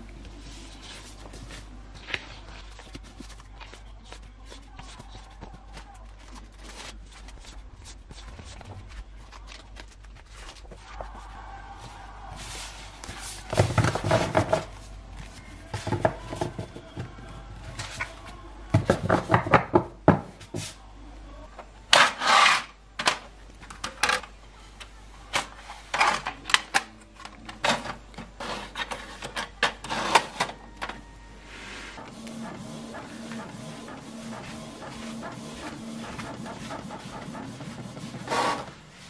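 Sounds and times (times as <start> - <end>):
paper rustling: 0.1 - 18.4.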